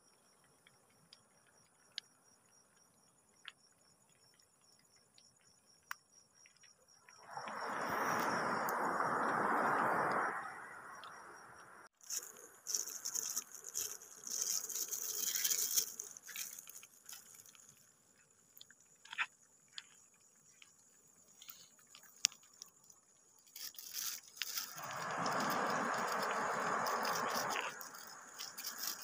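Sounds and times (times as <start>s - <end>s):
high crackling and fizzing: 11.9s - 19.0s, 19.9s - 29.0s.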